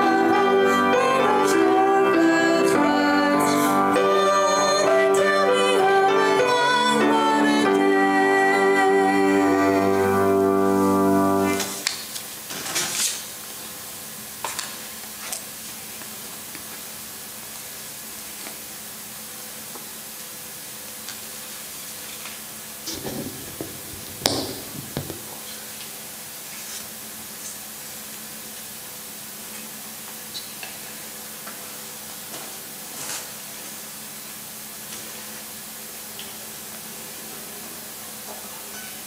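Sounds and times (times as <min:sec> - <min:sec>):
group singing a chord: 0:00.0 - 0:11.8
steady room hiss: 0:00.0 - 0:39.0
louder bumps: 0:22.9 - 0:25.5
handling knocks and rustles: 0:22.9 - 0:25.6.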